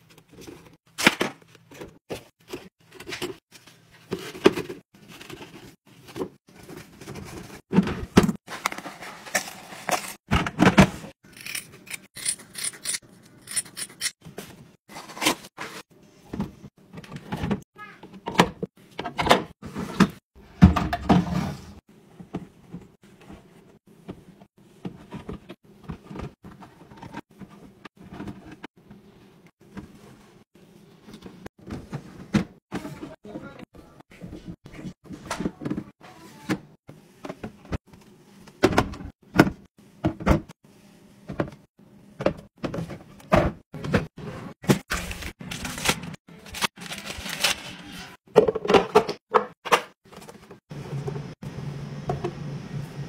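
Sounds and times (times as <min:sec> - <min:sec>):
sponges and packaging rustling: 0:00.0 - 0:11.2, 0:43.7 - 0:48.3
plastic bins knocking and clicking: 0:48.3 - 0:51.3.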